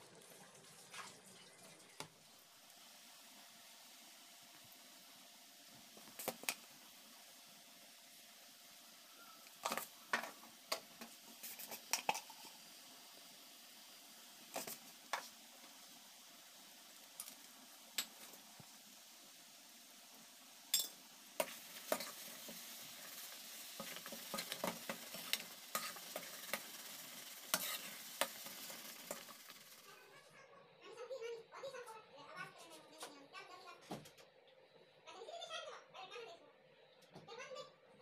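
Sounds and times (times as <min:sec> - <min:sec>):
simmering pulp sizzling: 0:00.0 - 0:31.3
spoon scraping steel pan: 0:23.8 - 0:26.6, 0:27.5 - 0:28.4.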